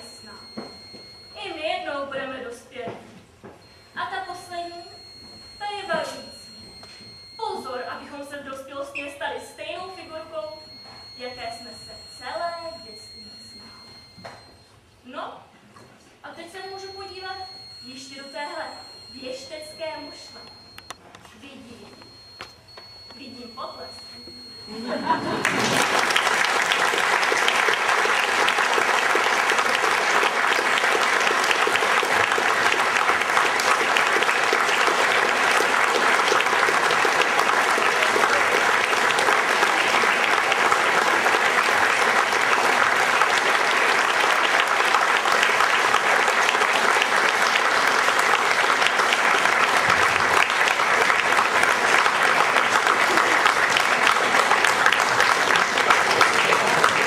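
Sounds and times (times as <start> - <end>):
audience applauding: 24.8 - 57.0.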